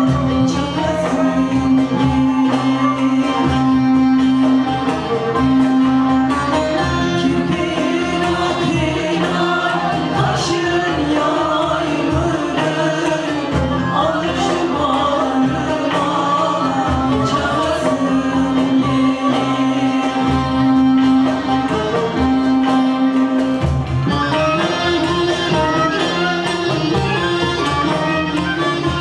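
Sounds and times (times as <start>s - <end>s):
folk singing with choir: 0.0s - 22.2s
long-necked lute playing: 0.0s - 29.0s.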